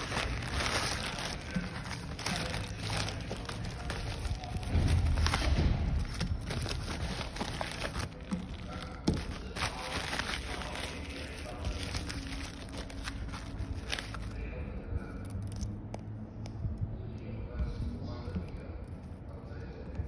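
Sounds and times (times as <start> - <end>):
plastic packaging rustling: 0.0 - 14.5.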